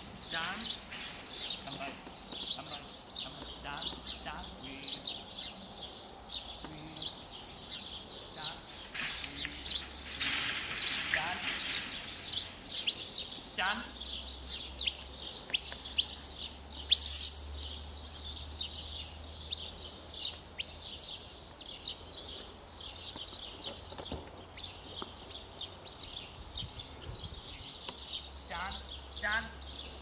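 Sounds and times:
birdsong: 0.0 - 30.0
wind rumble on microphone: 26.2 - 27.7.

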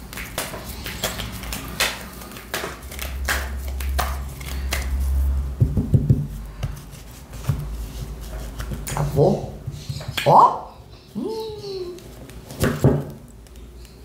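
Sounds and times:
cards shuffling: 0.0 - 5.3.

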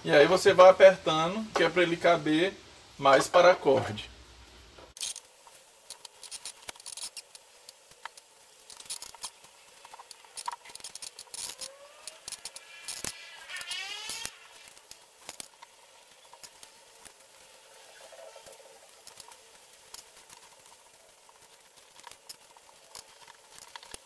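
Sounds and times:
cord rustling and clicking: 4.9 - 24.0
short rising squeaks: 10.8 - 14.8.

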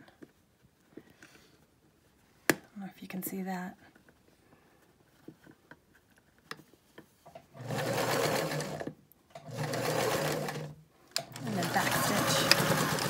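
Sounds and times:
sewing machine stitching: 7.5 - 13.0.

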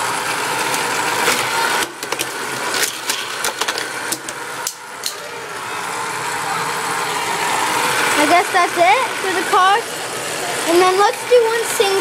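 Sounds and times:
toy track booster whirring: 0.0 - 12.0
toy cars clattering on plastic track: 0.6 - 5.2.

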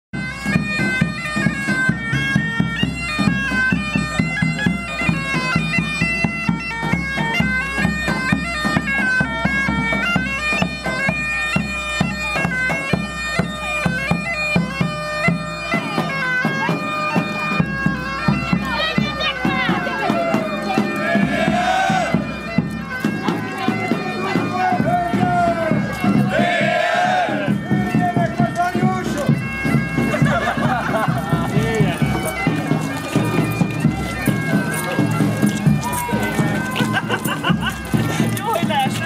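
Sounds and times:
bagpipes playing: 0.2 - 39.0
drumbeat: 15.8 - 39.0.

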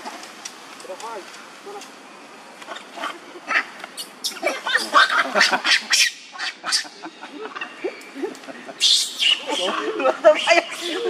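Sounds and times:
monkeys squawking and squealing: 2.7 - 11.0.

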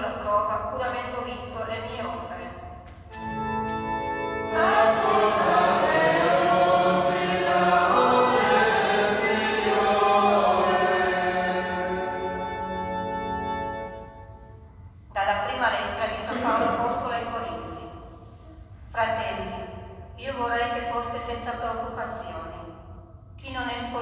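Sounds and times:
held organ chord: 3.1 - 14.6
voices singing: 4.4 - 12.8.

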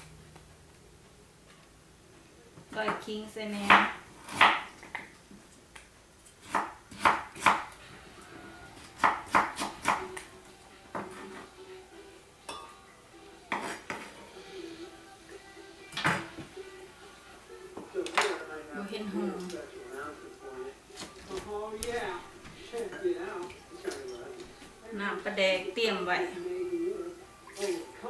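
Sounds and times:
knife chopping on cutting board: 3.6 - 4.7, 6.4 - 7.7, 8.9 - 10.1.

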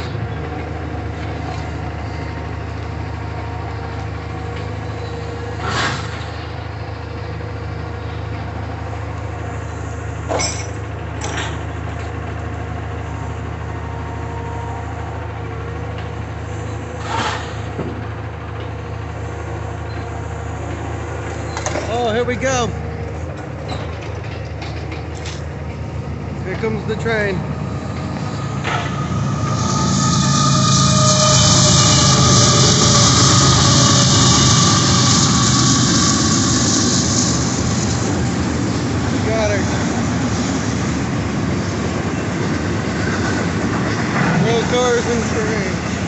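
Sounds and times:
diesel engine running: 0.0 - 46.0
scrap metal crashing into rail car: 17.0 - 18.0.

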